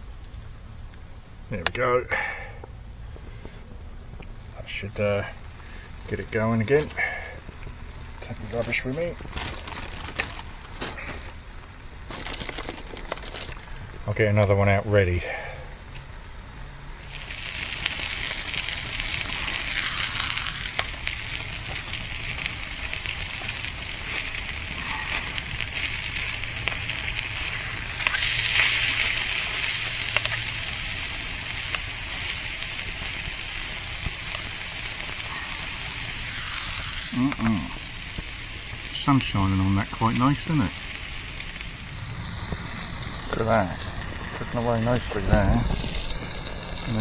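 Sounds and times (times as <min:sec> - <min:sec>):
chicken sizzling in a pan: 0:16.9 - 0:47.0.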